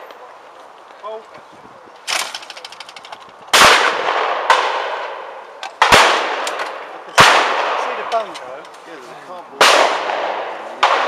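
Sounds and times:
shotgun shots with echo: 0:03.5 - 0:08.2, 0:09.6 - 0:11.0.

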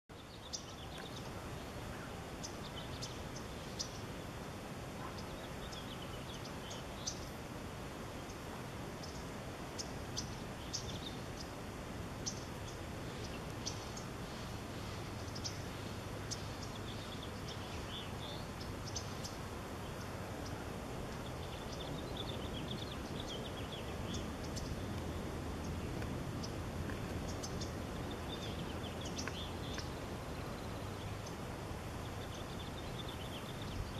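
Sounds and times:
birds chirping: 0:00.1 - 0:33.9.

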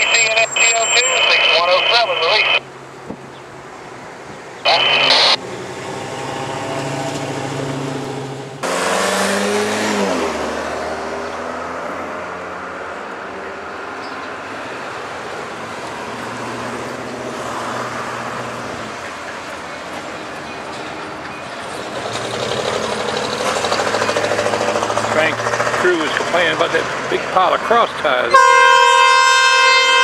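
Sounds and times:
diesel locomotive engines rumbling: 0:00.0 - 0:05.9, 0:18.2 - 0:30.0.

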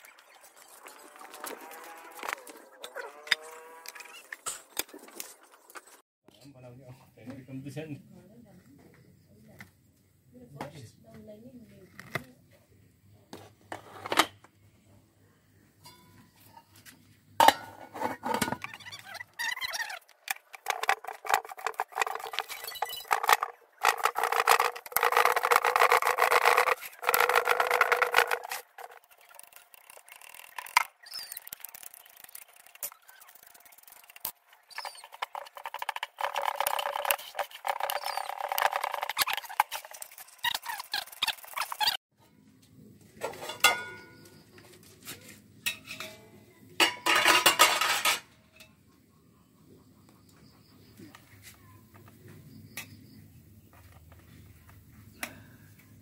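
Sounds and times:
stone grinding chillies: 0:17.9 - 0:42.0.

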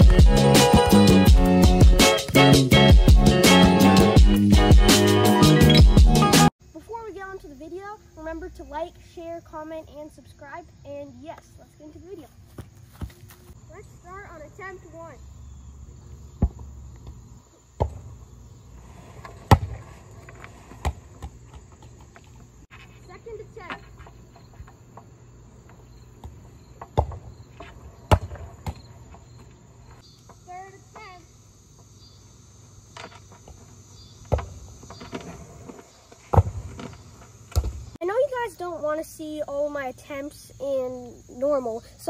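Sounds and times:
insects chirring: 0:06.6 - 0:42.0
ball kicked and bouncing: 0:12.5 - 0:13.6, 0:16.4 - 0:17.2, 0:17.8 - 0:18.1, 0:19.3 - 0:19.9, 0:20.7 - 0:22.4, 0:26.2 - 0:29.5, 0:34.2 - 0:35.2, 0:36.2 - 0:38.0
heavy thumps: 0:34.2 - 0:38.0.

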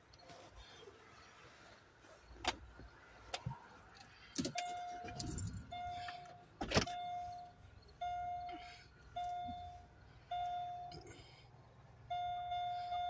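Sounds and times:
electronic warning beep: 0:04.6 - 0:11.0, 0:12.1 - 0:13.0.

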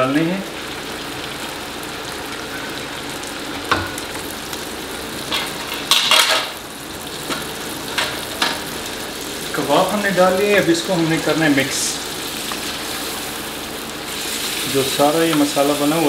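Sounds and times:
kebabs sizzling in a pan: 0:00.0 - 0:16.0.

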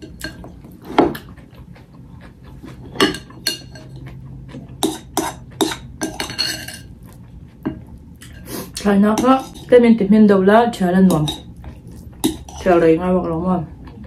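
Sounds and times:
spoon clinking against ceramic bowl: 0:04.8 - 0:06.9, 0:09.2 - 0:09.7, 0:11.1 - 0:11.5.

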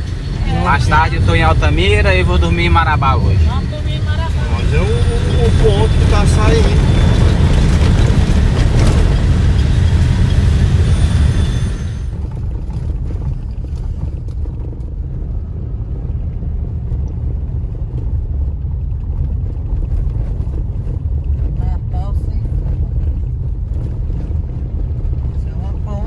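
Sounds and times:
car road rumble on dirt: 0:00.0 - 0:26.0.

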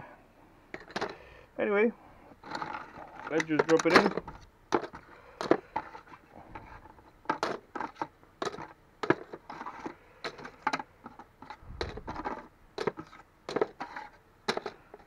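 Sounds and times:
circuit boards clattering into tub: 0:02.4 - 0:05.9.

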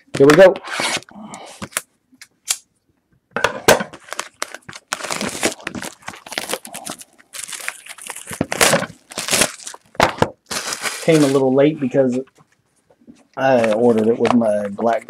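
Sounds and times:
plastic shrink wrap tearing: 0:04.0 - 0:11.4.

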